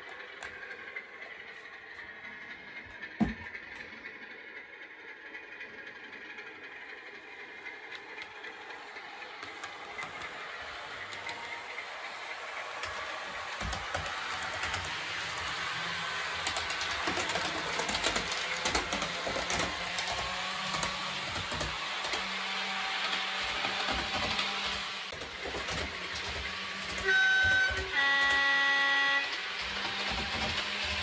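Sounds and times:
model train hum: 0.0 - 31.0
wheels clicking over track joints: 6.3 - 31.0
two-tone train horn: 27.0 - 29.6.

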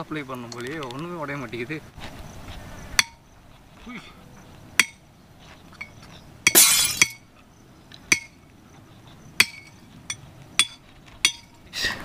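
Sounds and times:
glass-breaker clinking on bottle: 6.5 - 7.2.

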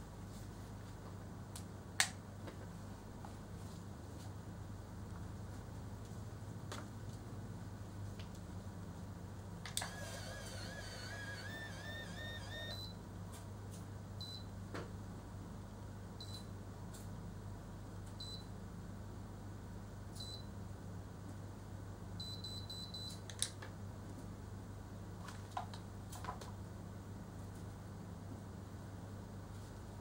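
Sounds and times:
hair curler whirring: 9.7 - 12.8
high beeps: 9.8 - 13.0.

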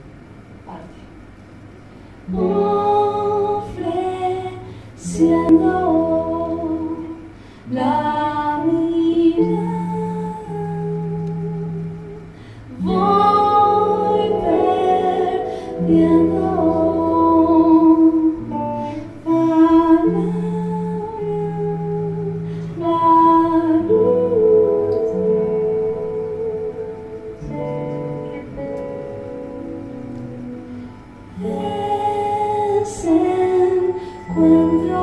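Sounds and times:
woman singing: 2.3 - 27.9, 31.3 - 35.0
sustained keyboard tones: 22.9 - 35.0.

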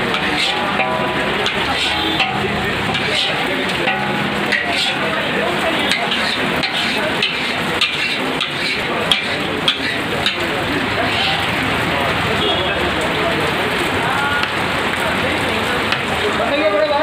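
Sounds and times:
metal scraper scraping iron pan: 0.0 - 11.6
hot pan hissing: 0.0 - 12.6.

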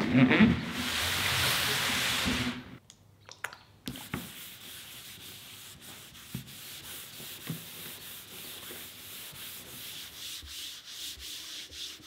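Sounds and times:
hand rubbing wood: 4.2 - 12.0.

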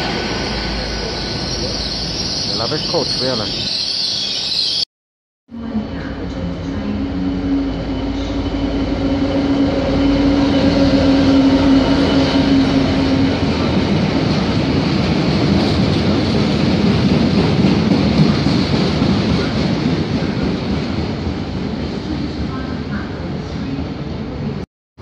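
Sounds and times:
diesel locomotive engine drone: 0.0 - 3.8, 5.5 - 24.6
wagons rumbling over rails: 5.5 - 24.6.

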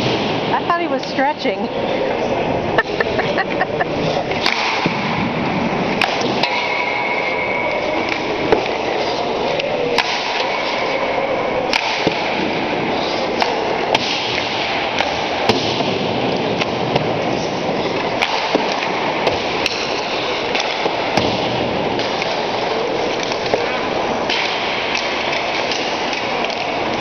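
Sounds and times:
pucks hitting pads and boards: 0.0 - 1.2, 2.9 - 27.0
ice rink background noise: 0.0 - 27.0
hockey sticks striking pucks: 3.8 - 27.0.

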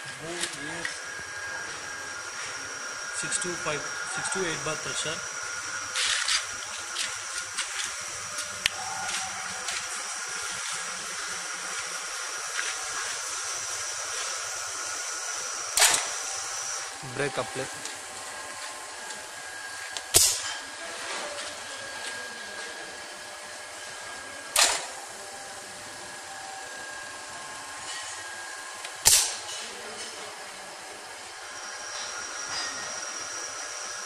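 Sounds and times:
faint steady whine: 0.0 - 34.0
pneumatic brake clack with air rush: 15.8 - 16.2, 20.1 - 20.6, 24.6 - 25.0, 29.0 - 29.6.

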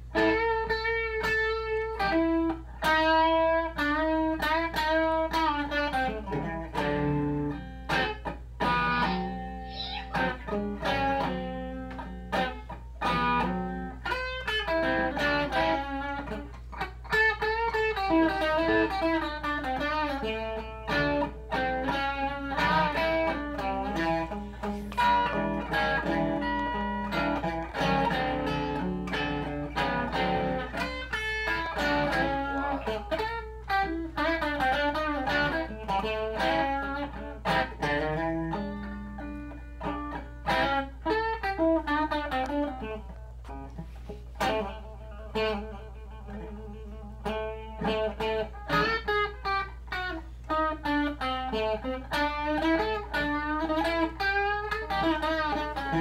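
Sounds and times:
electric guitar blues solo: 0.0 - 56.0.

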